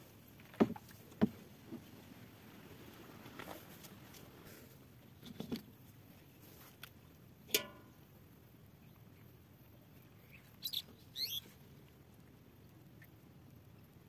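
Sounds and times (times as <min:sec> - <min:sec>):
faint steady hiss: 0:00.0 - 0:14.0
small birds chirping: 0:10.0 - 0:11.6.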